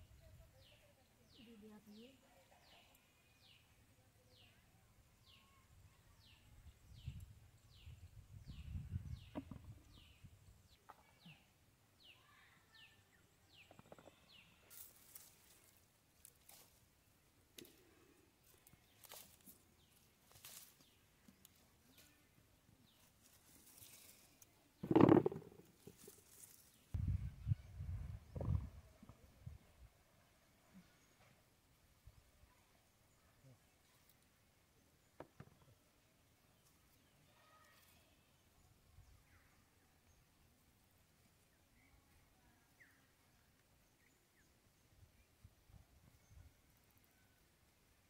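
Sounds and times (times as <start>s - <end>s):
plants rustling: 14.7s - 16.8s, 18.4s - 22.2s, 22.9s - 26.9s.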